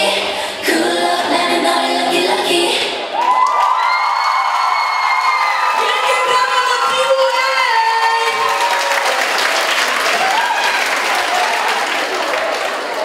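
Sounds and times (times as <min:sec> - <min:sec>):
screams and whoops: 0:03.1 - 0:06.3, 0:08.2 - 0:09.4, 0:10.0 - 0:12.4
audience clapping: 0:03.2 - 0:05.8, 0:08.0 - 0:13.0.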